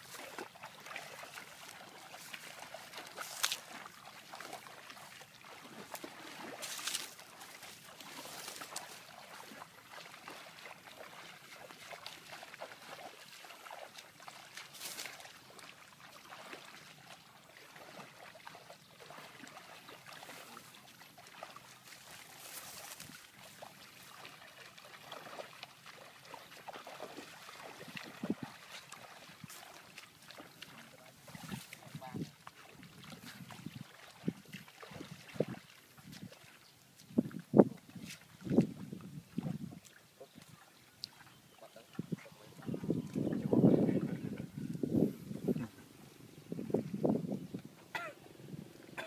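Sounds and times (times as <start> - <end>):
sharp splashes: 0.0 - 36.4
water sloshing from wading: 0.0 - 49.0.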